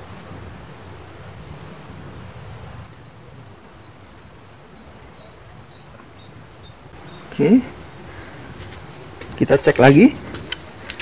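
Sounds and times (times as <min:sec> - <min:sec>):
steady hiss: 0:00.0 - 0:11.0
faint high insect chirps: 0:01.0 - 0:02.0, 0:03.7 - 0:08.9.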